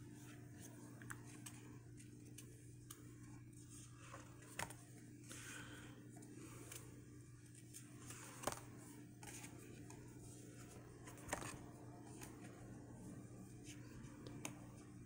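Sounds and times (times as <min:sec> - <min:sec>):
low steady hum: 0:00.0 - 0:15.0
cards tapping and clicking: 0:04.4 - 0:04.8, 0:08.1 - 0:10.0, 0:11.0 - 0:12.4, 0:14.2 - 0:14.8.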